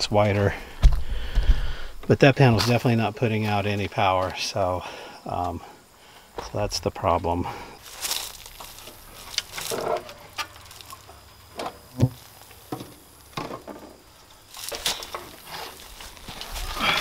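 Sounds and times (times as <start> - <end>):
solar panel clicking and knocking: 9.3 - 15.5.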